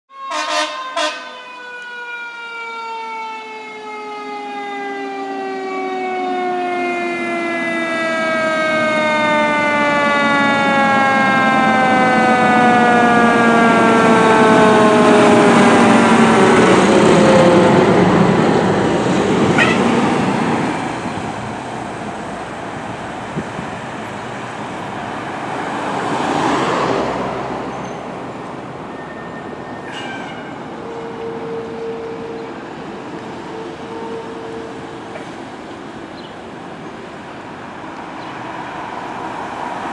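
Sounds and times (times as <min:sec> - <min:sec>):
short sharp siren blasts: 0:00.1 - 0:16.4, 0:19.5 - 0:20.2
fire truck siren winding down: 0:00.1 - 0:27.7
truck engine and road noise: 0:00.3 - 0:39.9.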